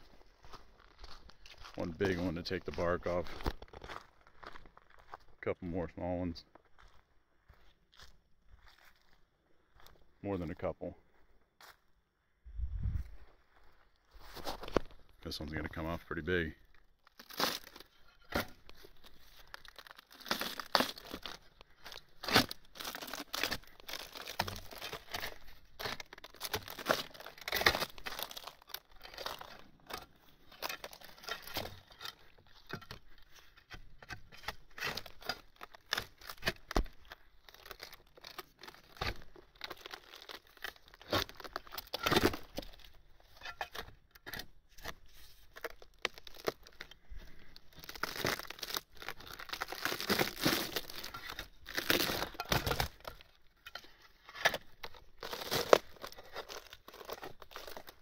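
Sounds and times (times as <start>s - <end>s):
bark tearing off a log: 17.1s - 18.6s, 19.5s - 21.4s, 22.2s - 30.0s, 47.8s - 53.2s, 54.4s - 58.0s.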